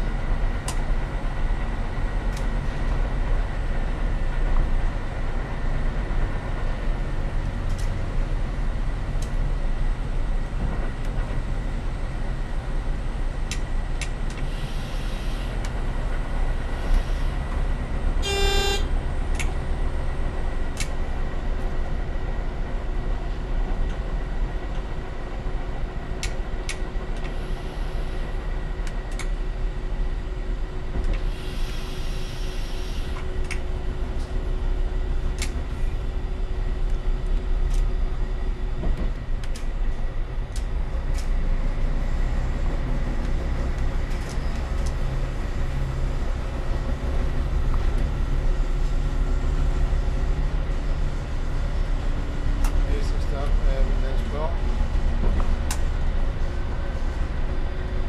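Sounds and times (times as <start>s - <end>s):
diesel railcar running: 0.0s - 58.0s
train horn toot: 18.2s - 18.9s.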